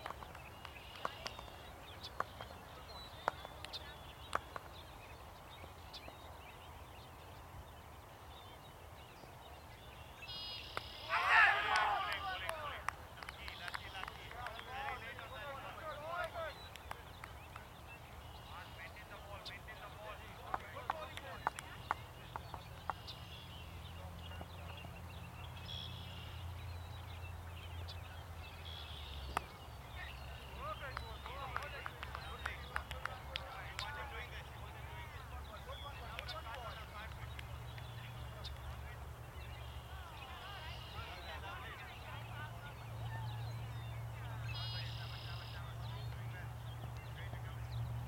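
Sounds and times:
birds chirping: 0:00.0 - 0:48.0
faint bird chirps: 0:10.0 - 0:11.1.

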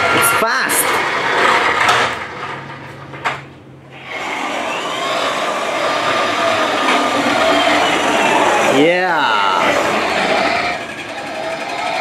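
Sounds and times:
toy car motor whirring: 0:04.0 - 0:12.0.

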